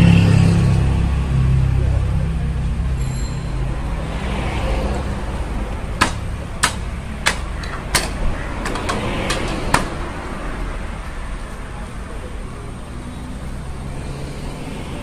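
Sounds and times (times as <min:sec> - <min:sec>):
road traffic rumble: 0:00.0 - 0:15.0
taps on metal gate: 0:06.0 - 0:10.0.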